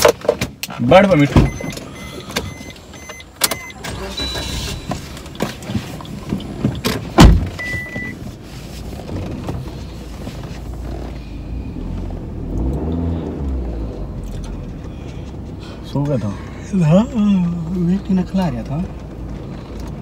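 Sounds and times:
short beep: 1.4s - 5.0s, 7.6s - 8.2s
loud thump: 7.2s - 7.6s
rustling: 8.1s - 12.2s.

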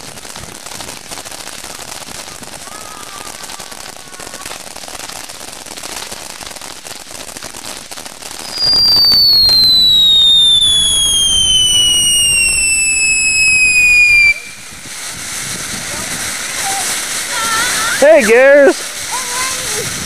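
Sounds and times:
firework crackling hiss: 0.0s - 20.0s
shrill descending whistle: 8.5s - 14.6s.

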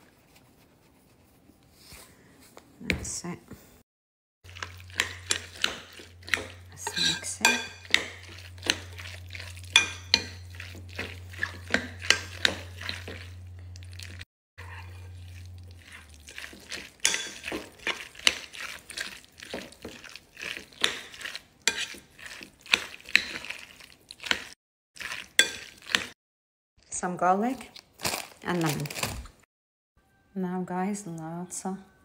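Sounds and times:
spoon clinking and scraping bowl: 4.5s - 26.1s.

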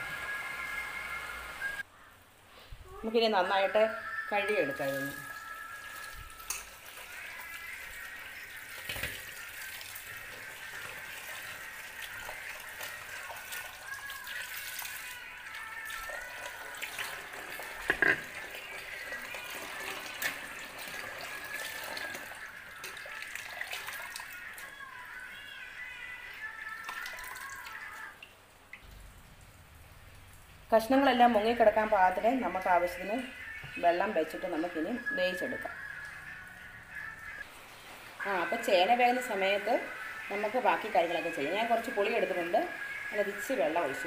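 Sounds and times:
tap water running into pan: 4.8s - 24.6s.

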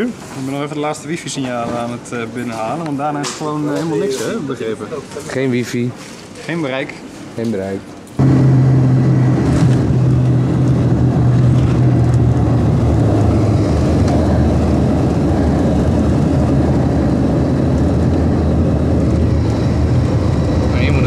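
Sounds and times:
low hum: 8.2s - 21.0s
propeller plane engine in cabin: 8.2s - 21.0s.

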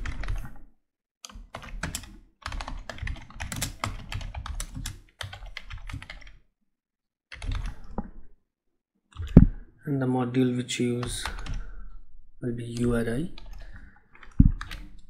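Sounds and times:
computer keyboard typing: 0.0s - 0.6s, 1.2s - 6.4s, 7.3s - 8.0s, 11.0s - 11.7s, 12.7s - 15.0s.

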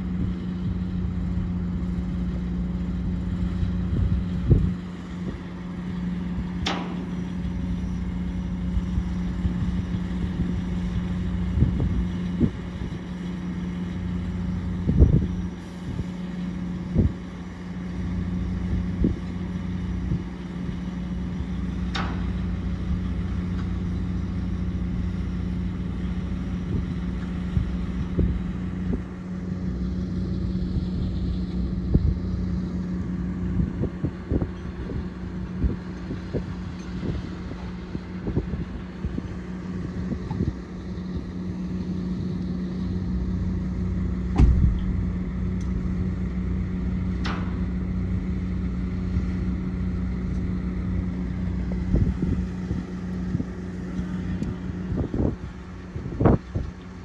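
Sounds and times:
engine humming: 0.0s - 57.0s
dull knocks: 44.3s - 44.9s.

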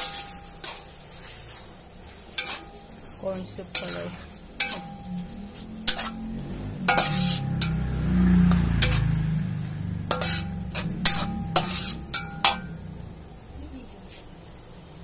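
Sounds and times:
metal spatula scraping wok: 0.0s - 14.3s
food sizzling: 0.0s - 15.0s
low rumble: 4.1s - 13.9s.

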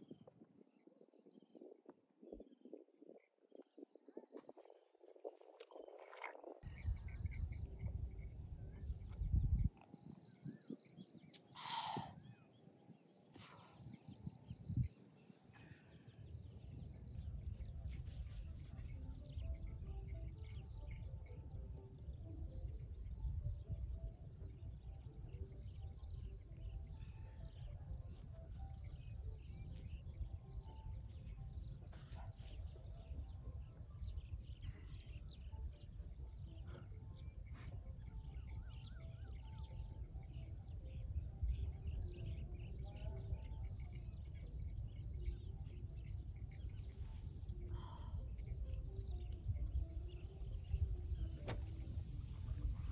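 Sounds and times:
insects chirping: 0.1s - 52.9s
bird calls: 6.1s - 21.3s.

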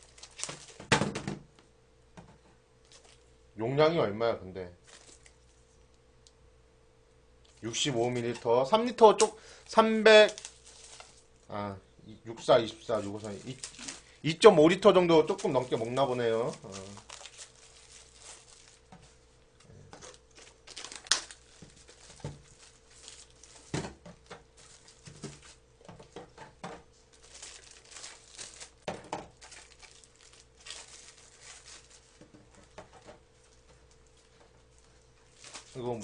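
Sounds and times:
foil lids being peeled: 0.0s - 0.9s, 9.0s - 11.2s, 12.8s - 14.1s, 15.0s - 19.1s, 19.9s - 26.5s, 27.1s - 36.0s
faint steady hum: 0.0s - 36.0s.

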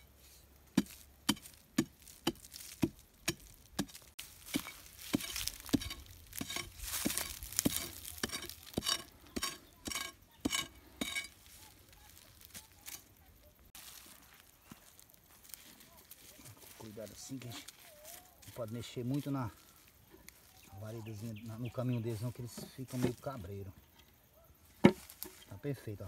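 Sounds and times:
loose soil scraping: 0.0s - 24.0s
steel bar striking hard dirt: 0.7s - 11.4s.

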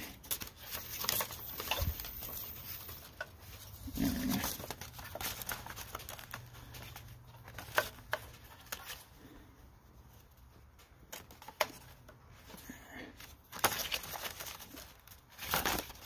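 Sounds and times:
paper rustling: 0.0s - 16.0s.

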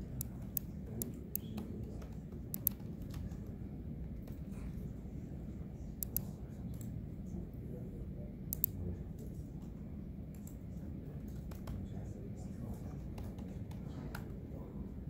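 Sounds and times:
computer keys clicking: 0.0s - 3.5s, 6.0s - 6.9s, 11.2s - 11.8s
low room hum: 0.0s - 15.0s.

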